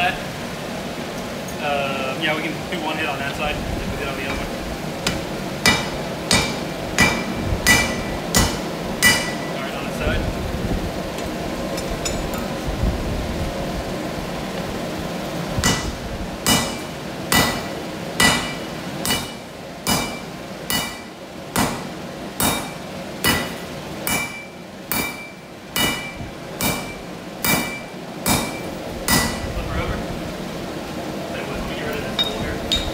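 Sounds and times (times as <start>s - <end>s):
sledgehammer striking hot steel: 5.0s - 9.6s, 15.6s - 29.6s.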